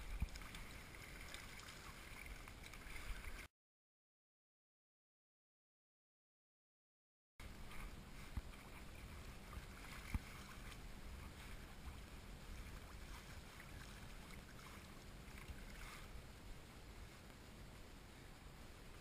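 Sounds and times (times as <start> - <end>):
water noise: 0.0 - 3.5, 7.4 - 19.0.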